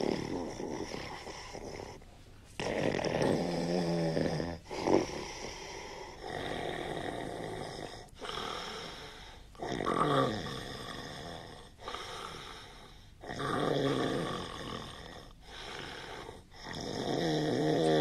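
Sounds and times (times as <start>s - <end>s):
heavy snoring: 0.0s - 2.0s, 2.6s - 18.0s.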